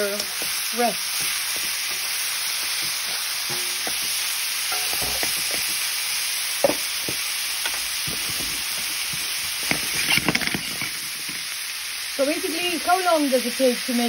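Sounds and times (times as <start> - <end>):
stir fry sizzling in a wok: 0.0 - 14.0
spatula scraping a pan: 0.1 - 5.9, 6.6 - 11.4.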